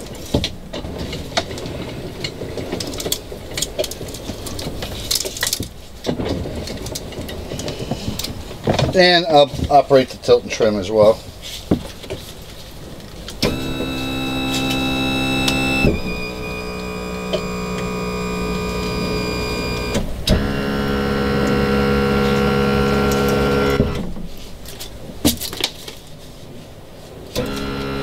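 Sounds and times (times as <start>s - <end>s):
tilt motor whining: 13.4s - 24.1s, 27.4s - 28.0s.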